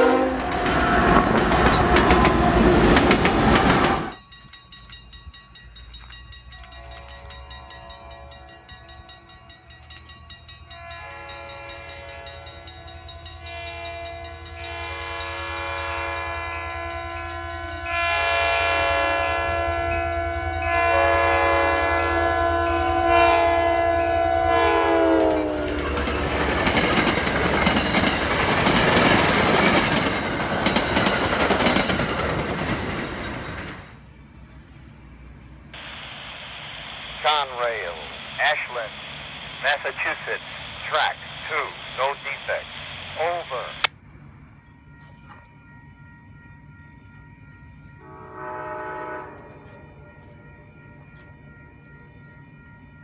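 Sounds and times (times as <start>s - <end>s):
train air horn blasts: 0.0s - 2.6s, 6.6s - 8.8s, 10.7s - 12.7s, 13.4s - 26.4s, 48.0s - 50.1s
train wheels clattering over rails: 0.3s - 7.8s, 25.2s - 34.0s.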